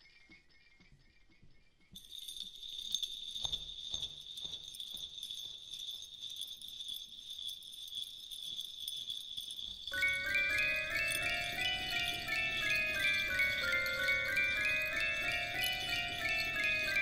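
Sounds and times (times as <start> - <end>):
jingling bell shimmer: 2.0 - 17.0.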